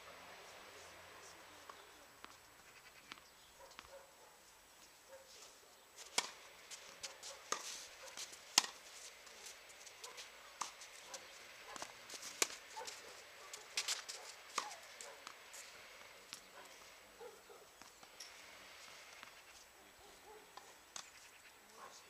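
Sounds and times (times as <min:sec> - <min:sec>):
tennis ball knocks: 0:06.1 - 0:06.4, 0:08.5 - 0:08.8.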